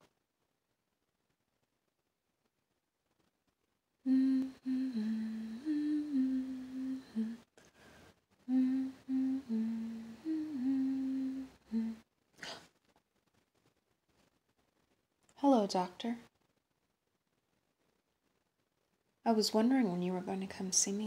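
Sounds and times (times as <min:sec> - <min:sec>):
woman humming a melody: 0:04.0 - 0:07.5, 0:08.5 - 0:12.0.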